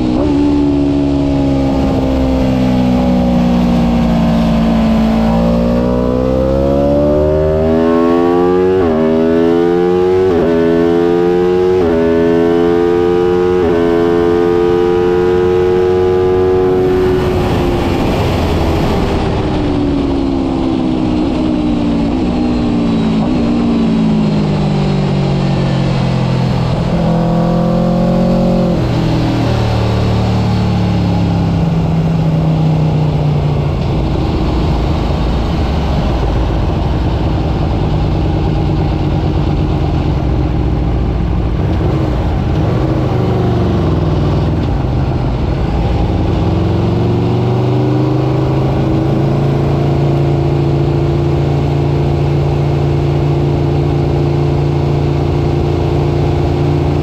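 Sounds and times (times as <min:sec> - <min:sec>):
motorcycle engine accelerating: 0:00.0 - 0:57.0
wind noise on microphone: 0:16.1 - 0:49.4.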